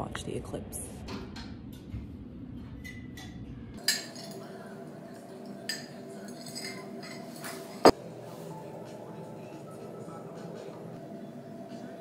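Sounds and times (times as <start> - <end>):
ice clinking in a cup: 5.2 - 7.9.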